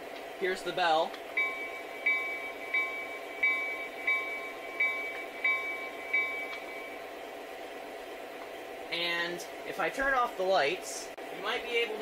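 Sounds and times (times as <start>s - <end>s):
diesel engine idling: 0.0s - 12.0s
model locomotive bell ringing: 1.4s - 7.0s.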